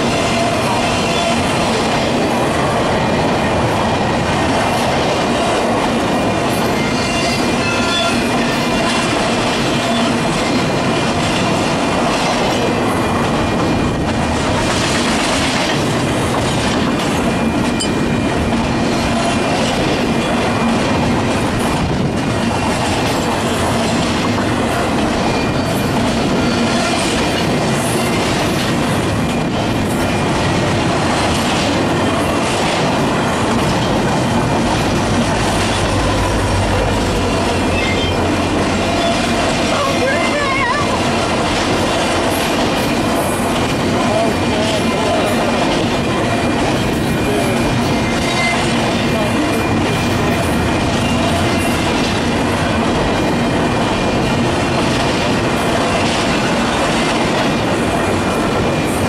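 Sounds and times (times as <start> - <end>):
wheels squealing against rail: 0.1 - 1.6, 6.6 - 10.7, 25.2 - 27.2, 35.4 - 41.0, 46.2 - 51.9.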